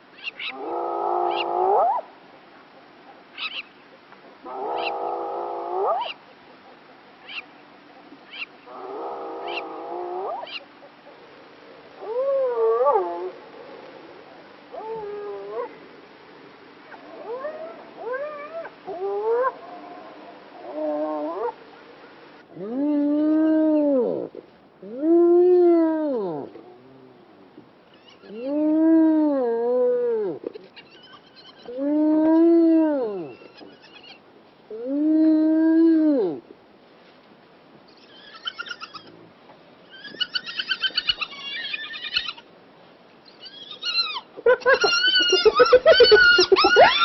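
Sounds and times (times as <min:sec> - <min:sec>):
hyena calling: 0:00.2 - 0:02.1, 0:04.4 - 0:06.3, 0:07.2 - 0:11.2, 0:30.2 - 0:36.4, 0:37.9 - 0:39.2, 0:43.2 - 0:47.0
hyena whooping: 0:43.4 - 0:47.0.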